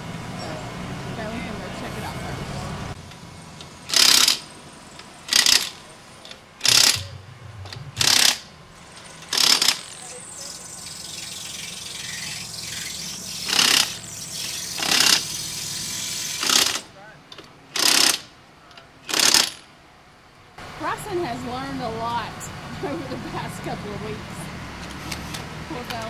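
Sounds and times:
impact wrench hammering: 0:03.9 - 0:05.8, 0:06.6 - 0:16.8.

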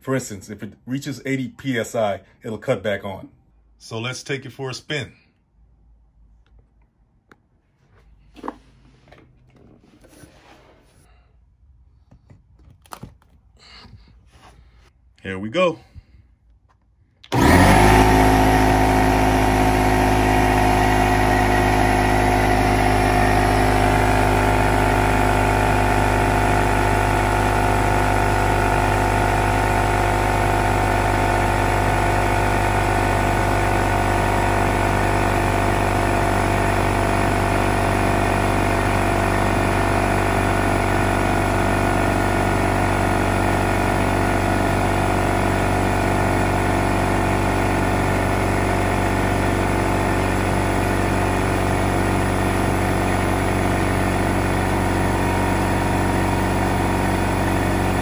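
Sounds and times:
air compressor running: 0:17.2 - 0:58.0.

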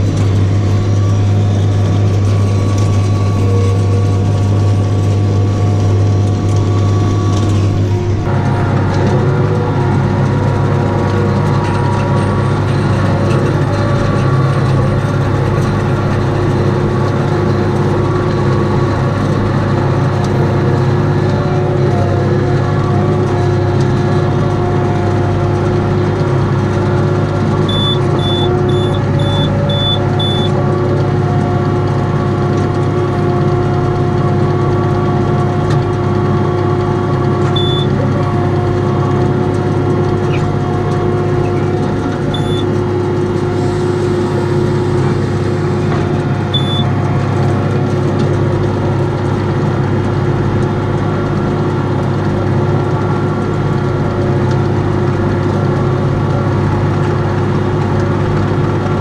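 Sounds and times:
tractor engine running: 0:00.0 - 0:59.0
short high electronic beeps: 0:27.7 - 0:30.5, 0:37.6 - 0:37.9, 0:42.4 - 0:42.7, 0:46.6 - 0:46.9.

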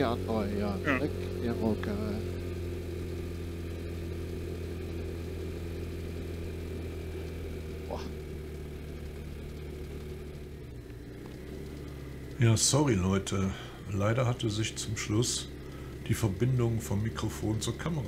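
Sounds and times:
scooter engine running steadily: 0:00.0 - 0:18.0.

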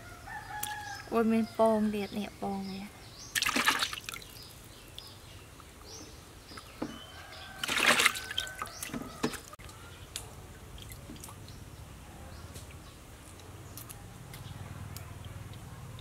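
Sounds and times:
water sloshing and splashing: 0:03.3 - 0:05.1, 0:07.4 - 0:09.6, 0:10.7 - 0:11.7.

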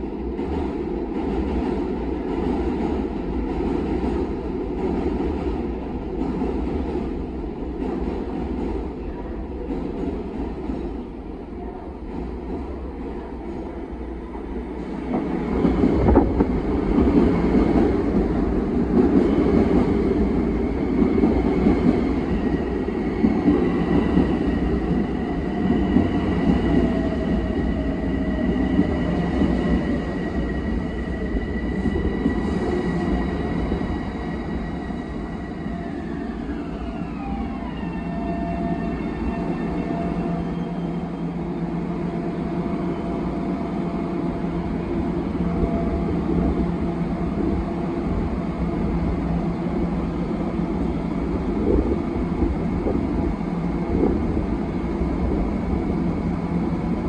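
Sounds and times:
train wheels rumbling on rails: 0:00.0 - 0:57.0
electric train whine: 0:15.1 - 0:57.0.

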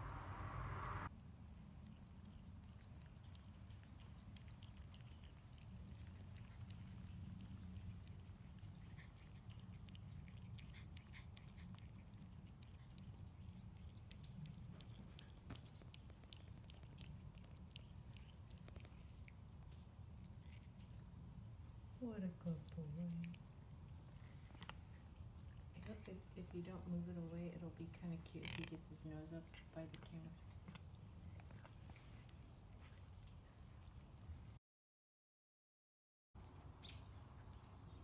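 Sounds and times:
low steady rumble: 0:00.0 - 0:02.7
cat chewing and licking: 0:00.1 - 0:34.6, 0:36.4 - 0:38.0.

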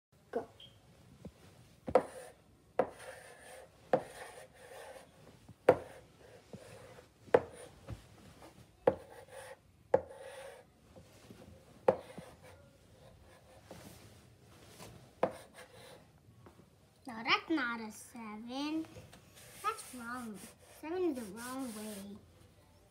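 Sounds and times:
chalk scratching on chalkboard: 0:01.9 - 0:07.7, 0:08.9 - 0:10.7, 0:11.9 - 0:13.9, 0:15.2 - 0:16.0, 0:19.4 - 0:22.2
chalk tapping on chalkboard: 0:01.9 - 0:07.7, 0:08.9 - 0:10.6, 0:11.8 - 0:12.5, 0:15.2 - 0:16.0, 0:19.4 - 0:22.2.

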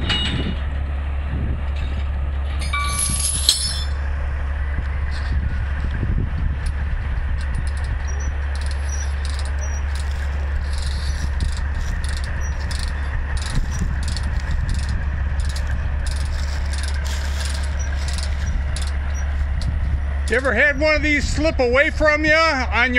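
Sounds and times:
diesel engine idling: 0:00.0 - 0:22.9
metallic clinks and rattles: 0:02.5 - 0:04.0, 0:07.4 - 0:20.4.

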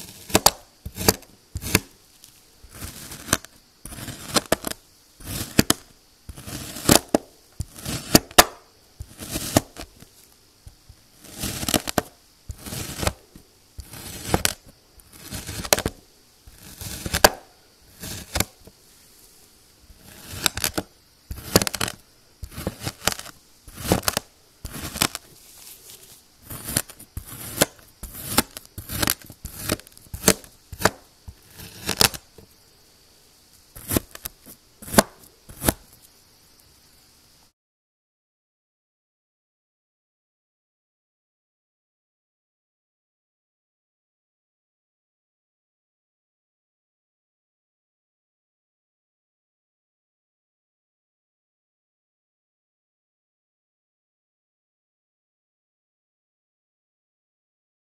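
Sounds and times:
knife crunching through sand: 0:00.0 - 0:32.5, 0:33.7 - 0:36.0.

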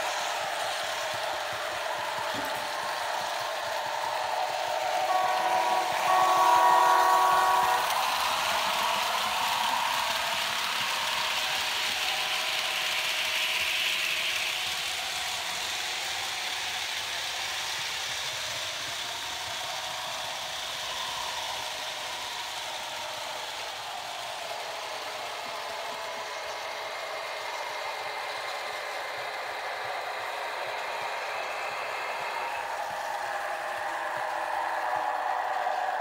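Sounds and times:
model train running on track: 0:00.0 - 0:36.0
model train horn: 0:04.9 - 0:11.2.

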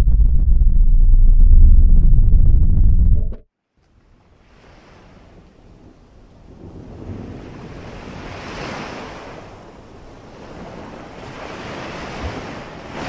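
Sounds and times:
wind: 0:03.5 - 0:13.0
ocean waves breaking: 0:04.0 - 0:13.0.

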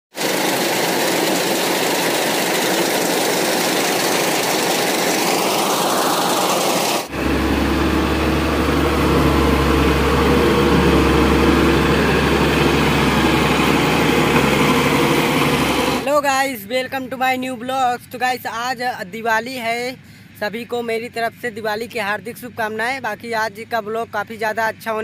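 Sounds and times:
combine harvester running: 0:00.1 - 0:16.2.

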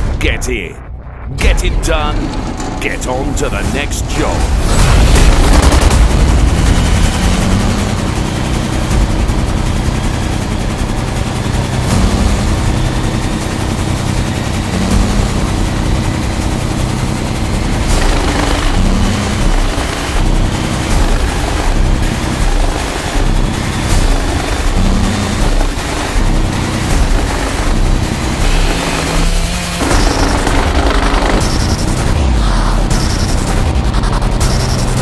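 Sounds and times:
wood chipper chipping wood: 0:11.6 - 0:32.1
chainsaw cutting a log: 0:17.7 - 0:32.0.

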